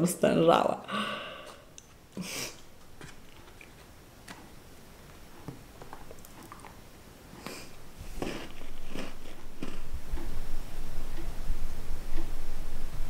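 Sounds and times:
faint chewing: 1.5s - 10.3s
chocolate wrapper rustling: 8.0s - 9.8s.

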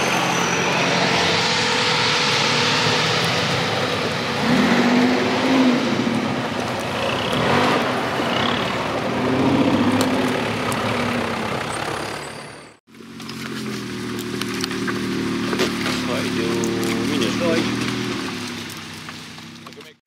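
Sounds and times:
engine running at low revs: 0.0s - 20.0s
off-road engines revving: 0.0s - 20.0s
tyre noise: 4.4s - 20.0s.

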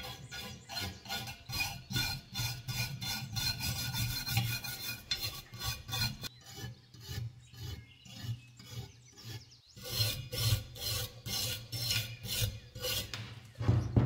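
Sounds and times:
metal scraper scraping rust: 0.0s - 14.0s
dull knock: 13.6s - 14.0s.

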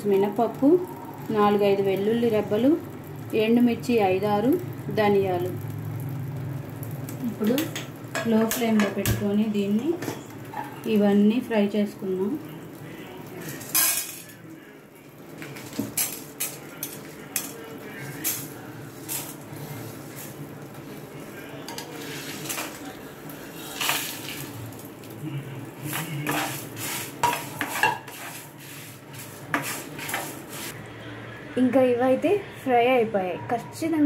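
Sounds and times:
spices clattering in a pan: 6.8s - 12.0s, 13.2s - 30.7s
wooden spatula stirring: 15.4s - 30.8s.

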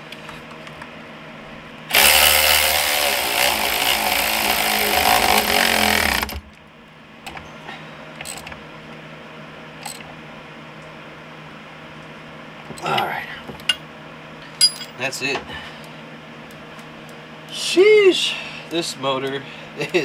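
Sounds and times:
cordless electric ratchet running: 1.9s - 6.4s.

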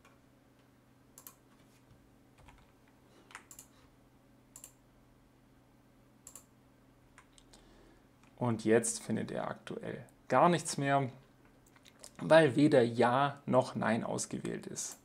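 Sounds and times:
computer keyboard keystrokes: 1.2s - 1.4s, 3.3s - 3.7s.

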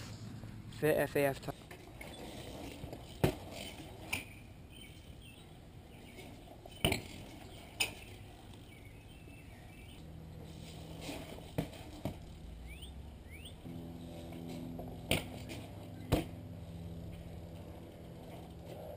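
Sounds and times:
low steady hum: 0.0s - 18.9s
bike landing knocks and clanks: 6.7s - 8.1s, 14.4s - 16.4s.

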